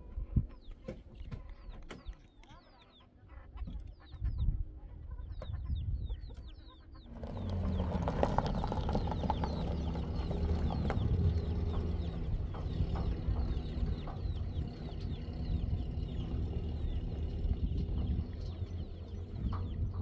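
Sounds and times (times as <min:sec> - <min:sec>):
faint low rumble: 0:02.8 - 0:20.0
pickup truck engine: 0:07.1 - 0:20.0
tyres on gravel: 0:07.1 - 0:20.0.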